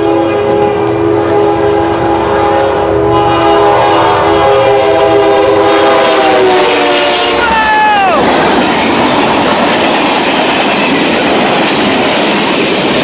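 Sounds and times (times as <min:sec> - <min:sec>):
locomotive air horn chord: 0:00.0 - 0:07.5
locomotive engine humming: 0:00.0 - 0:13.0.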